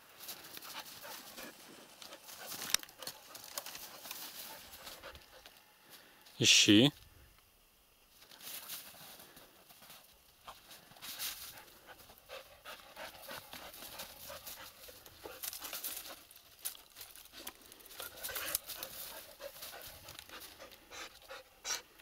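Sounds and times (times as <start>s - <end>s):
dog panting hard: 0.3s - 5.6s, 11.2s - 16.3s, 17.9s - 22.0s.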